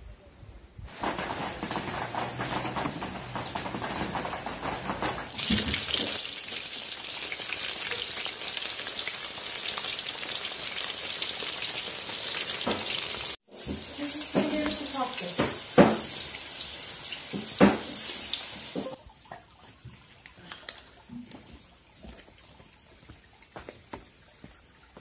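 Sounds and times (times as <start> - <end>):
hot oil sizzling: 2.5 - 19.0.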